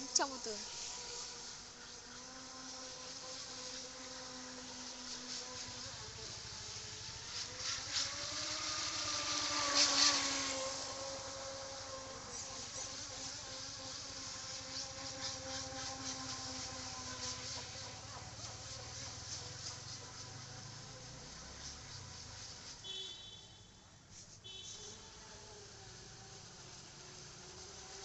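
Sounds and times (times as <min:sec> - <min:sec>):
model boat motor whining: 0:00.0 - 0:21.5
water spray hiss: 0:00.0 - 0:28.0.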